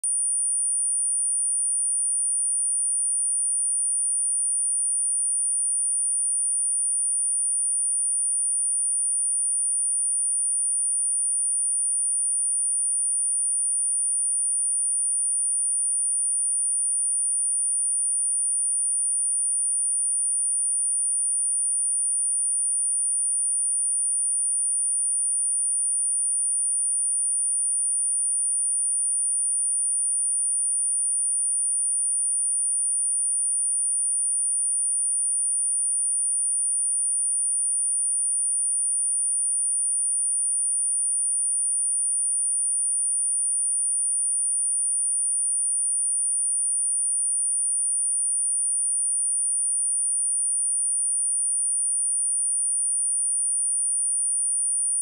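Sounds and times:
high-pitched sine test tone: 0.0s - 4.6s, 26.0s - 55.0s.

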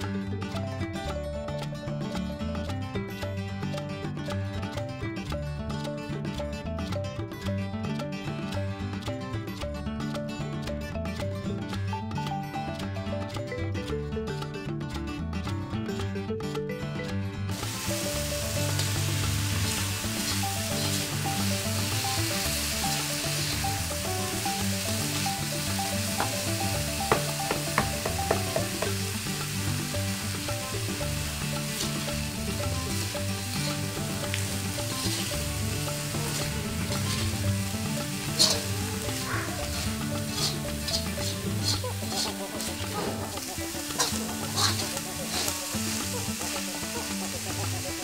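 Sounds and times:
food sizzling in a wok: 17.5s - 48.0s
metal spatula scraping pan: 36.2s - 46.0s.

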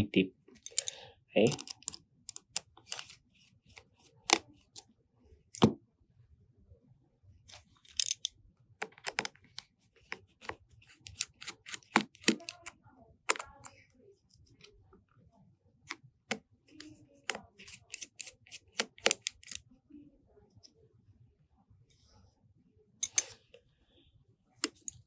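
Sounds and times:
small metal tools clicking: 0.6s - 2.6s.

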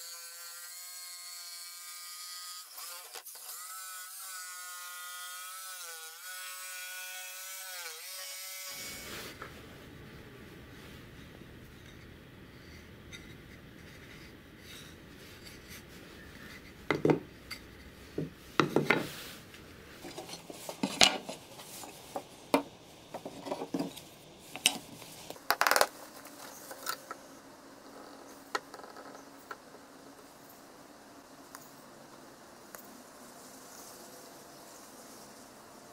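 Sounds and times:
light rubbing: 8.8s - 27.2s
wooden pieces knocking on workbench: 16.9s - 17.3s, 18.2s - 19.1s
glass sheet set down: 18.2s - 19.2s.

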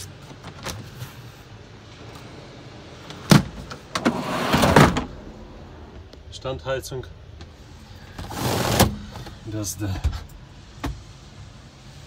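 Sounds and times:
drawer sliding on rails: 3.1s - 6.0s, 8.2s - 9.4s.

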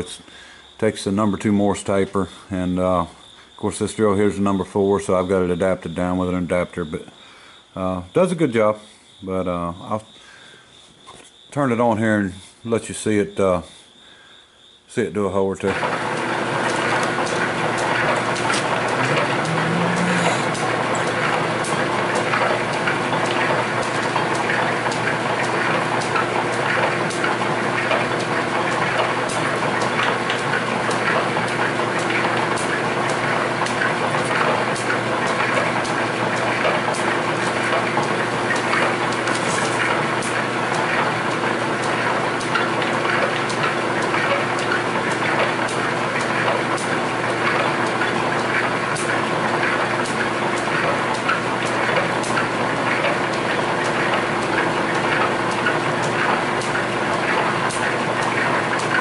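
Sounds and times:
drill press motor humming: 15.8s - 59.0s.

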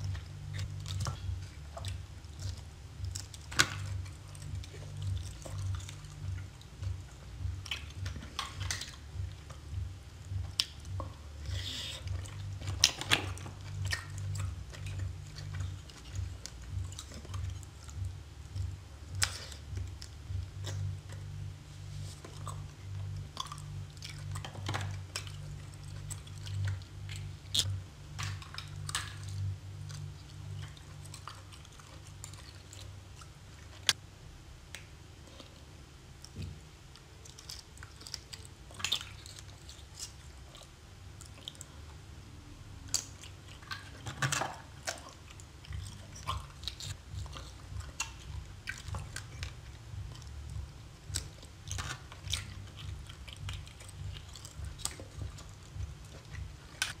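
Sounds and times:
chewing with wet mouth sounds: 0.0s - 34.0s, 34.8s - 57.0s
small mouth clicks: 10.3s - 21.3s.

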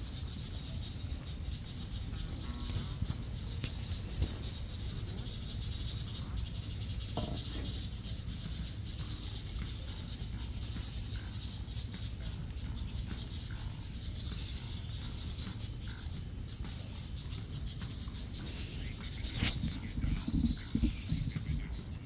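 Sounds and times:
insects chirring: 1.5s - 22.0s
low steady rumble: 13.8s - 22.0s.

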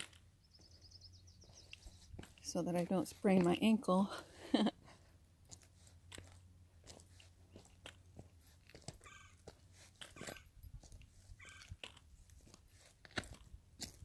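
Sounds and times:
boot footsteps crunching on gravel: 1.4s - 3.8s, 5.5s - 14.0s.

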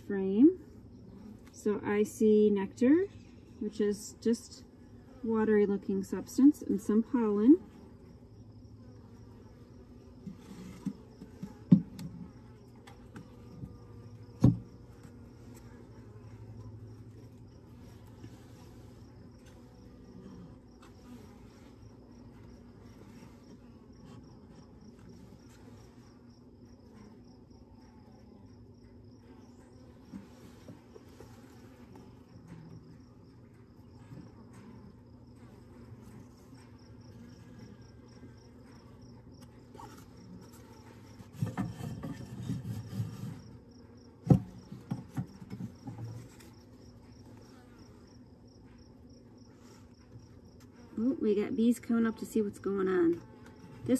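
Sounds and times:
honeybees buzzing: 0.0s - 53.9s
knocks on wooden hive: 11.2s - 12.0s, 14.4s - 14.7s, 44.2s - 46.0s
wooden frames scraped: 41.2s - 43.6s.

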